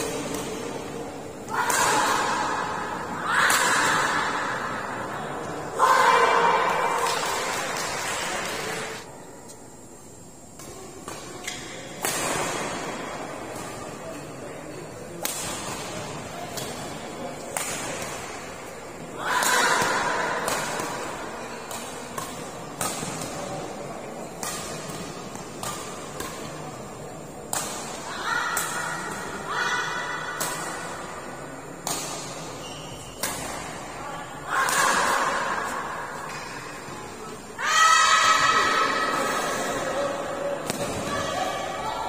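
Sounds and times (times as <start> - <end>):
voices and shouting: 1.4 - 7.6, 34.0 - 36.2, 37.3 - 42.0
rackets striking shuttlecock: 15.2 - 18.5, 19.4 - 28.0, 31.8 - 33.9.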